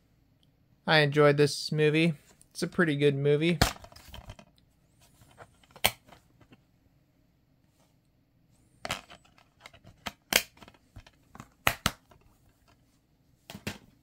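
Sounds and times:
plastic case clicking and snapping: 9.2s - 12.2s.

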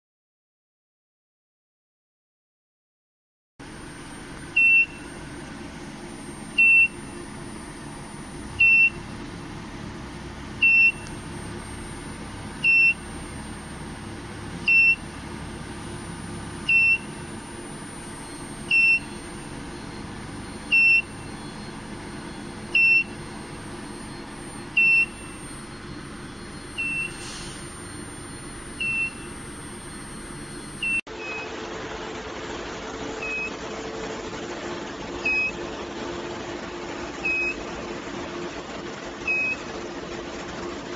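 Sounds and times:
cabinet cooling hum: 3.6s - 31.0s
short high beeps: 10.6s - 31.5s.

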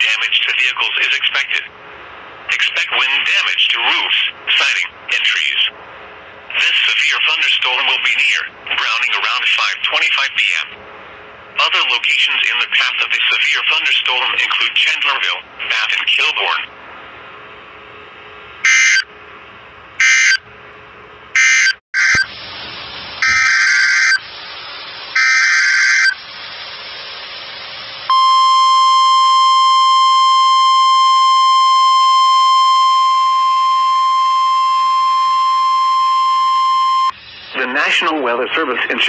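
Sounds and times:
radio hiss: 0.0s - 1.7s, 2.5s - 5.8s, 6.5s - 10.8s, 11.6s - 16.7s, 37.1s - 39.0s
steady warning alarm tone: 18.6s - 19.1s, 20.0s - 20.4s, 21.4s - 22.3s, 23.2s - 24.2s, 25.1s - 26.2s, 28.1s - 37.2s.

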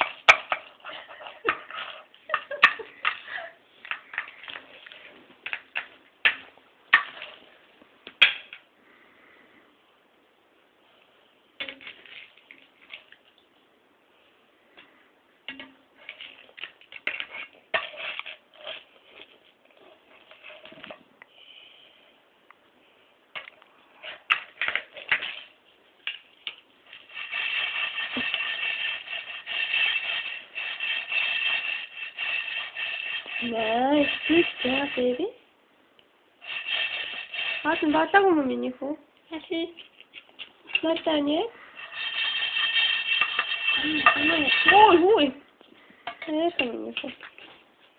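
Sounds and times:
candies rattling in a frying pan: 0.0s - 7.5s, 11.6s - 13.3s, 15.5s - 21.0s, 24.1s - 35.4s, 36.4s - 38.8s, 40.7s - 45.4s.

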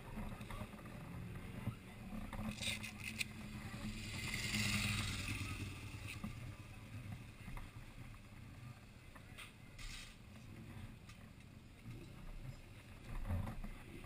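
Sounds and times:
motorcycle engine idling: 3.0s - 9.4s.

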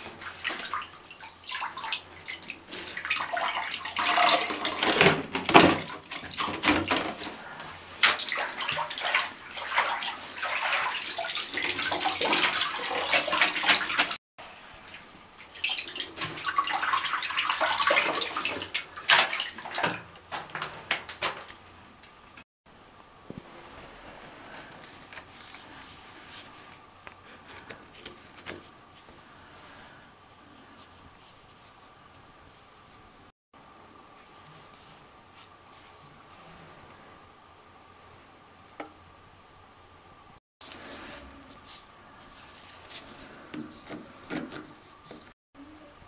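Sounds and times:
mop wrung in bucket wringer: 0.0s - 14.2s, 14.8s - 21.5s
water splashing and dripping: 0.2s - 7.2s, 8.0s - 14.2s, 14.8s - 21.4s.

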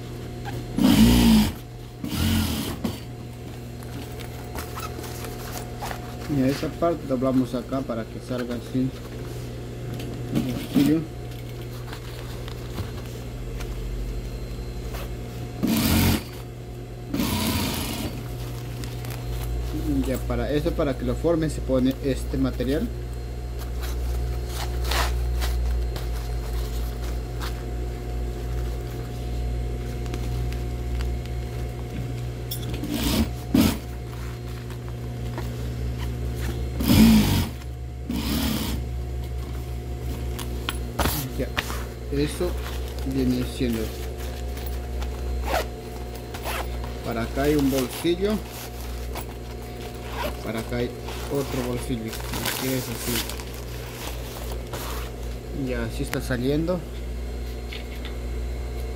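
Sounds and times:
steady low hum: 0.0s - 58.9s
sewing machine motor hum: 0.7s - 3.1s, 15.6s - 16.4s, 17.1s - 18.4s, 32.7s - 34.3s, 36.4s - 38.9s
sewing machine stitching: 15.6s - 16.3s, 17.1s - 18.1s.

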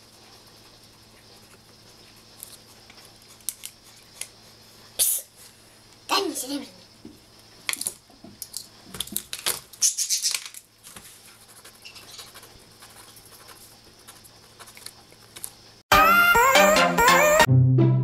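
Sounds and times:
marker scratching on paper: 11.3s - 14.8s
music: 15.9s - 18.0s.

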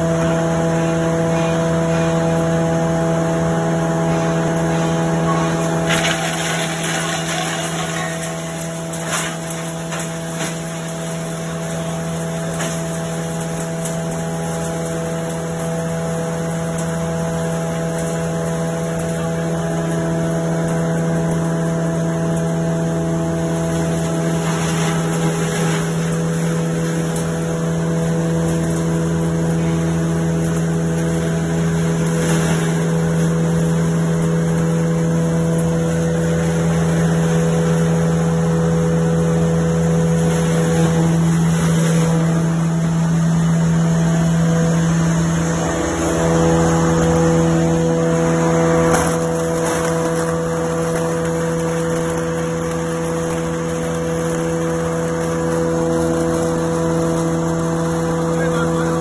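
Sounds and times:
sawdust machine motor humming: 0.0s - 59.0s
rough crushing noise: 5.6s - 15.6s, 30.2s - 59.0s.

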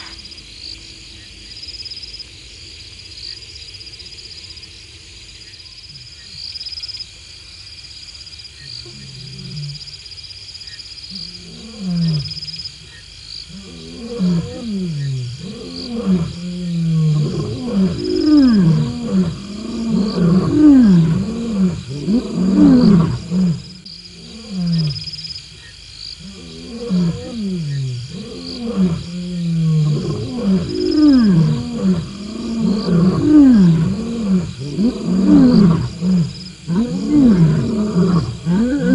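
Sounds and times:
crickets chirping: 0.0s - 38.9s
lions roaring: 13.5s - 25.1s, 26.2s - 38.9s.

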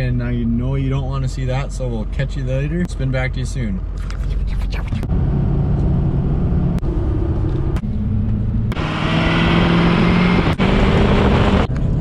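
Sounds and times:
road and wind noise: 0.0s - 12.0s
truck engine drone: 3.8s - 12.0s.

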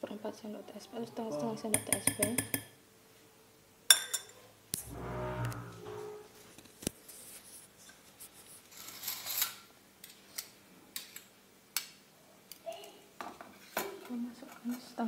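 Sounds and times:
teaspoon clicking on glass bowls: 1.8s - 2.7s.

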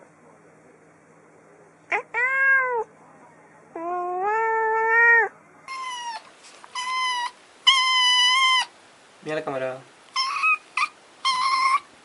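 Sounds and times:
cat meowing: 1.9s - 2.9s, 3.8s - 8.7s, 10.2s - 11.9s
kitten meowing: 1.9s - 2.9s, 3.8s - 8.7s, 10.2s - 11.9s.

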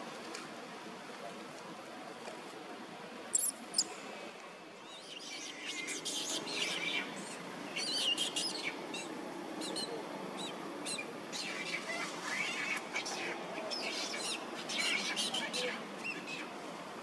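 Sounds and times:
birds chirping: 3.3s - 3.9s.

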